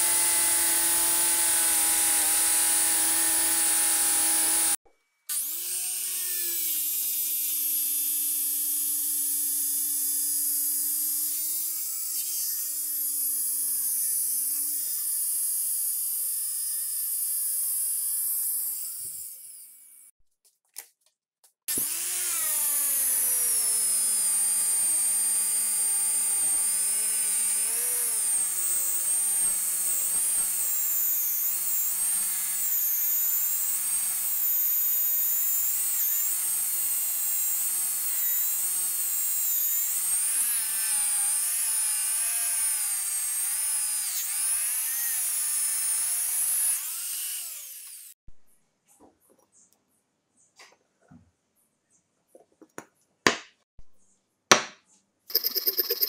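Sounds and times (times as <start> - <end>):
angle grinder buffing metal: 0.0 - 8.2, 21.7 - 48.2, 55.3 - 56.0.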